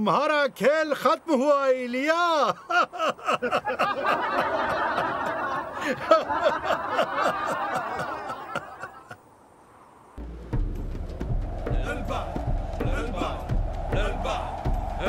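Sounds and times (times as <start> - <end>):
crowd laughing: 2.6 - 9.2.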